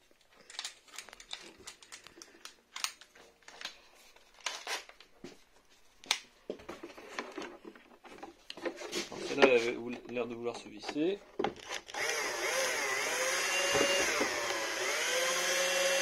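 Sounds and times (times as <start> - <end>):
screw clicking and scraping in plastic: 0.4 - 3.8.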